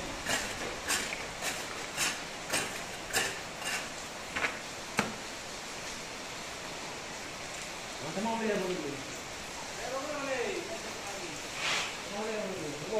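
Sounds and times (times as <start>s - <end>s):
scraping on plastered wall: 0.0s - 4.0s.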